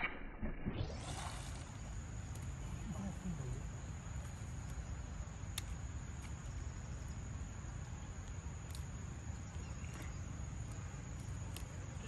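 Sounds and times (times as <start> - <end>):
crickets chirping: 0.8 - 12.0
faint clicks: 5.5 - 6.3.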